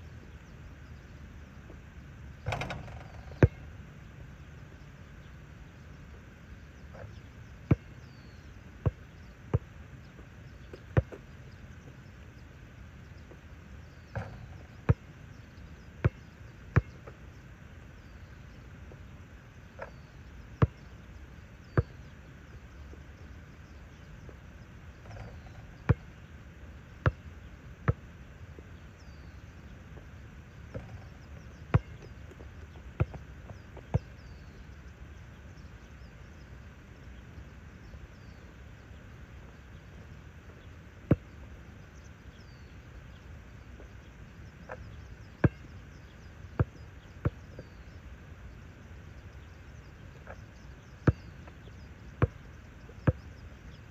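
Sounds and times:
outdoor background hiss: 0.0s - 53.9s
basketball bouncing on hard court: 2.5s - 3.6s, 16.8s - 17.0s, 25.1s - 26.0s, 31.7s - 32.1s, 33.0s - 34.1s, 51.1s - 51.3s.

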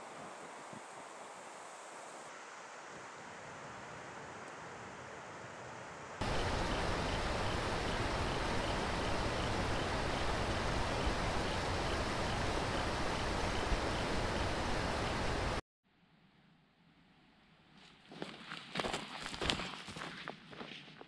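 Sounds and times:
breezy hiss: 6.2s - 15.6s
river rushing over rapids: 6.2s - 15.6s.

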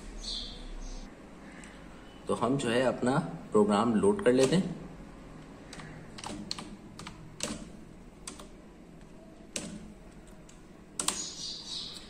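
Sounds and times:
keyboard key clicks: 5.7s - 8.5s.

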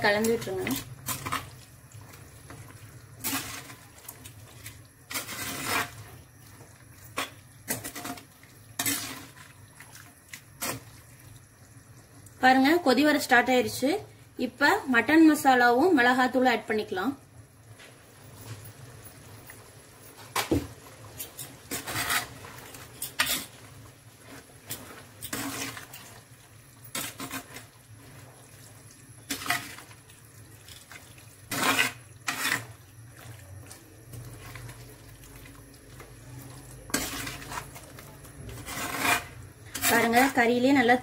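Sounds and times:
metal spoon scraping clay pot: 5.1s - 6.0s, 7.2s - 9.4s, 21.2s - 23.6s, 25.2s - 26.0s, 26.9s - 27.7s, 31.5s - 32.8s, 36.8s - 37.8s, 38.5s - 40.4s
thick curry squelching: 21.7s - 40.0s.

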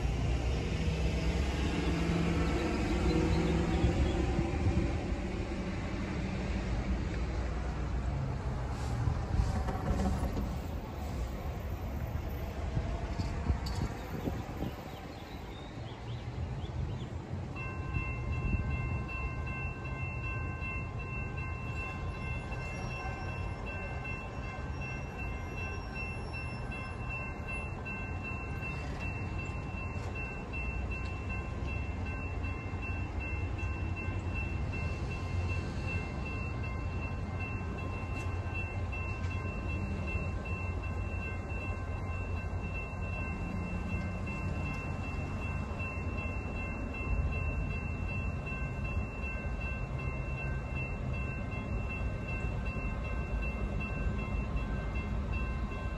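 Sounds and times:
railroad crossing bell ringing: 0.0s - 5.7s, 9.9s - 16.4s, 17.2s - 55.9s.

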